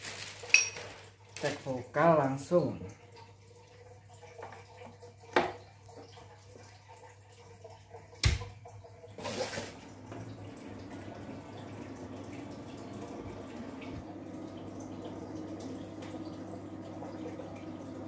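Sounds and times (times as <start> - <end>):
electrical hum: 8.2 - 18.0.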